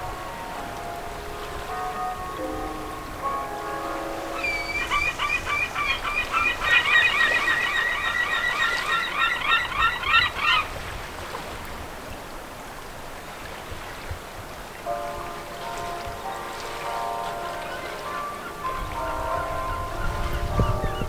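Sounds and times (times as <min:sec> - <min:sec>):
bird calling: 0:03.9 - 0:10.7, 0:16.2 - 0:21.0.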